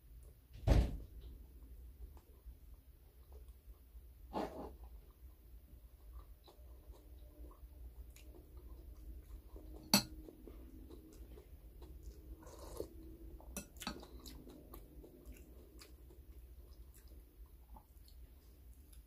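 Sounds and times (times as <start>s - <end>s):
faint chewing: 1.6s - 19.0s
cutlery clinking on glass bowl: 9.9s - 10.2s.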